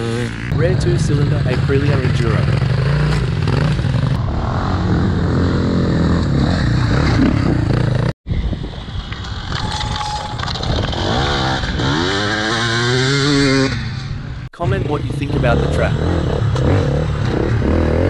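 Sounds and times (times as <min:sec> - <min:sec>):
motorcycle engine running: 0:00.0 - 0:08.1
motorcycle riding by: 0:00.0 - 0:08.1
wind on microphone: 0:06.8 - 0:12.3.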